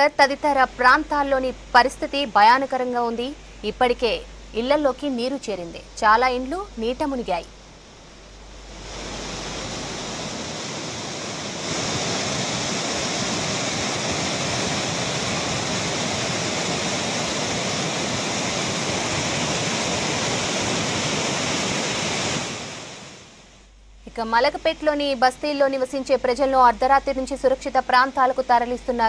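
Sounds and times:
floodwater rushing: 0:03.4 - 0:23.3.

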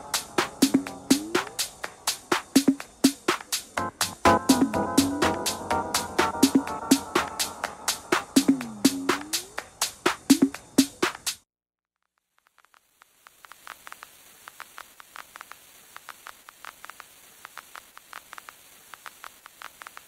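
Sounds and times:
electronic house music: 0:00.0 - 0:11.4
faint steady hiss: 0:00.0 - 0:11.4, 0:12.3 - 0:20.0
crackling clicks: 0:12.0 - 0:20.0.

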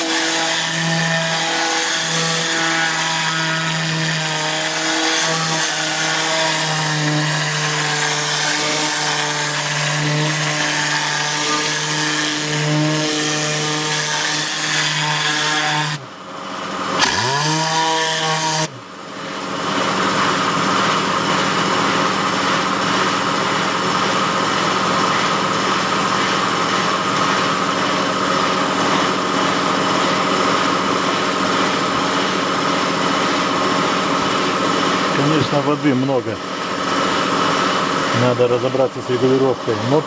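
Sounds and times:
air compressor running: 0:00.0 - 0:40.0.

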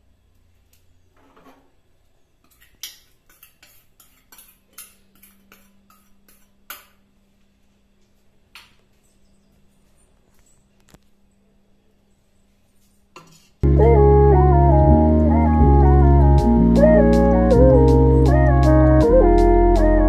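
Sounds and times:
spoon scraping into pot: 0:03.3 - 0:06.5.

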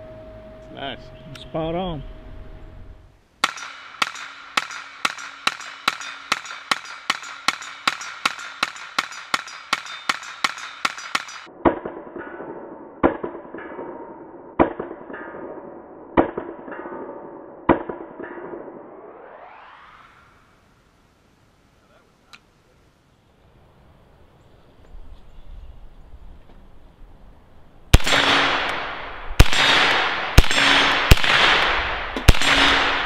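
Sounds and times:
rifle firing semi-automatic shots: 0:03.4 - 0:18.8, 0:27.9 - 0:33.0.

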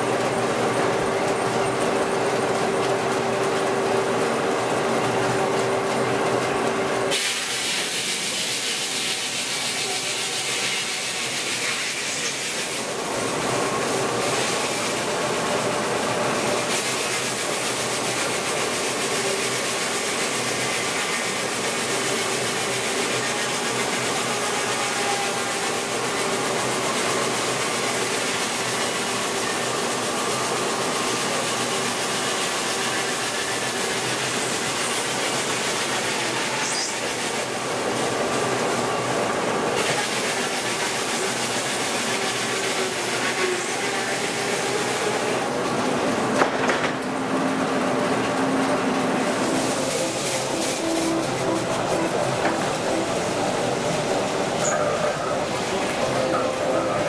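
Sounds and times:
saw cutting log: 0:07.1 - 0:38.2, 0:39.8 - 0:45.5, 0:49.2 - 0:56.0.

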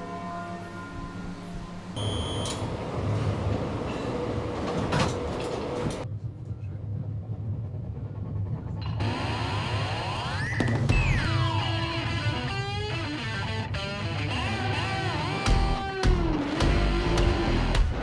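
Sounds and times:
funicular railway car rumbling: 0:00.0 - 0:10.4
short high beep: 0:02.0 - 0:02.6.

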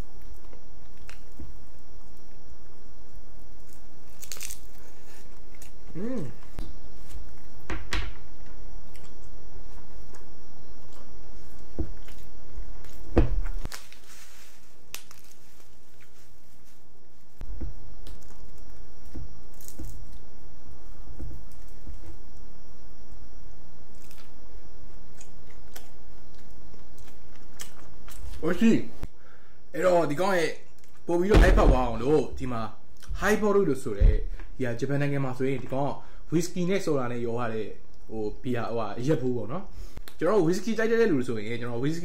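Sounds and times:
person chewing: 0:08.8 - 0:09.3, 0:10.1 - 0:13.0, 0:25.1 - 0:28.4
soft low thumps: 0:31.3 - 0:32.0, 0:33.9 - 0:34.4.

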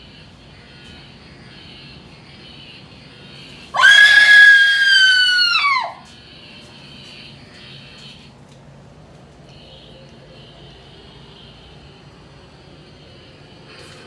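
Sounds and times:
high-pitched scream: 0:03.7 - 0:06.1.

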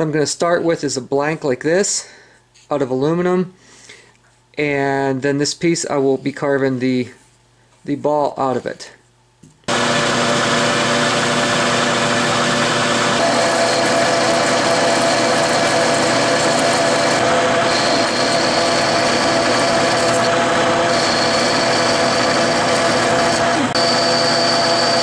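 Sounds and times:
metal lathe humming: 0:09.7 - 0:25.0
thin high whine: 0:13.2 - 0:25.0.

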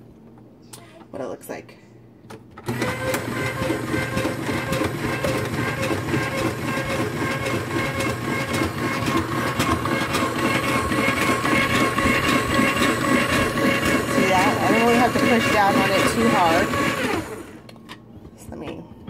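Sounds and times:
electric mandoline motor whir: 0:02.6 - 0:17.7.

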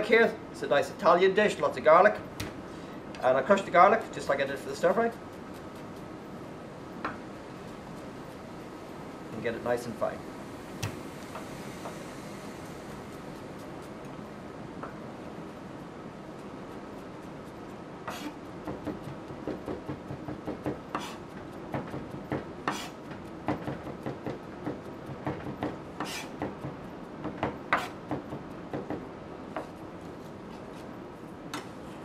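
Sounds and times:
knife chopping on plastic board: 0:18.1 - 0:29.0.

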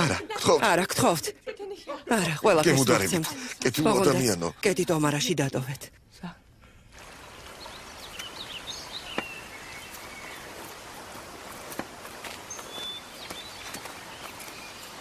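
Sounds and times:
forest stream rushing: 0:06.9 - 0:15.0
birds chirping and whistling: 0:07.6 - 0:10.5, 0:12.4 - 0:15.0.

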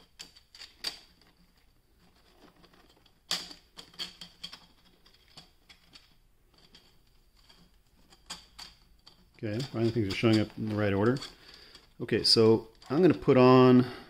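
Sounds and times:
plastic rings clicking together: 0:02.8 - 0:13.1.

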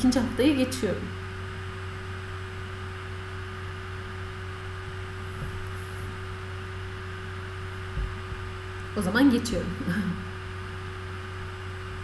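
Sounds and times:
electrical hum: 0:00.0 - 0:12.0
constant mid-pitched tone: 0:08.0 - 0:10.6.

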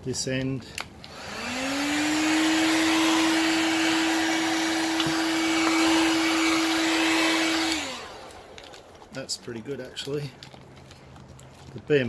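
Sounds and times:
heat gun motor whine: 0:00.8 - 0:08.9.

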